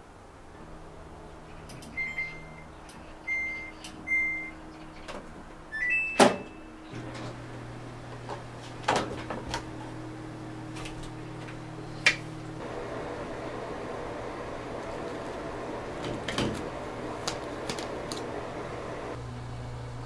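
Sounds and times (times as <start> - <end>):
washing machine humming: 0.0 - 20.0
control panel beeps: 1.8 - 4.7, 5.7 - 6.9
rising start chime: 1.9 - 4.6, 5.7 - 6.9.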